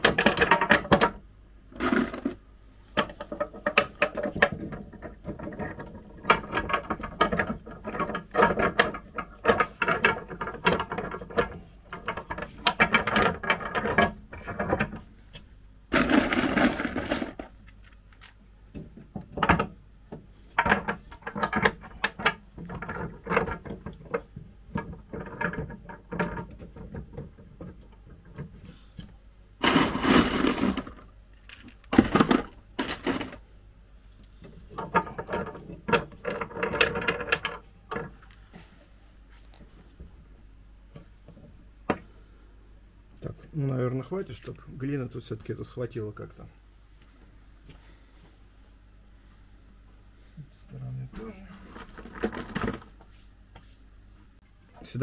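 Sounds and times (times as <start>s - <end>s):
rocks clattering and knocking: 34.3s - 38.2s.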